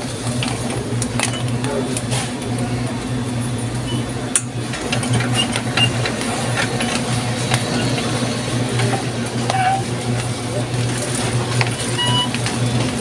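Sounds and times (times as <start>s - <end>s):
cart wheels rumbling: 0.0s - 13.0s
cart basket rattling: 4.6s - 13.0s.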